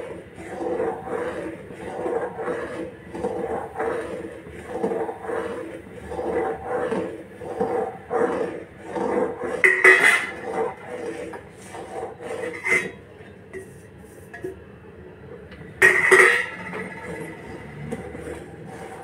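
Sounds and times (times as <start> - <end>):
spatula scraping metal pan: 0.0 - 13.0, 15.8 - 19.0.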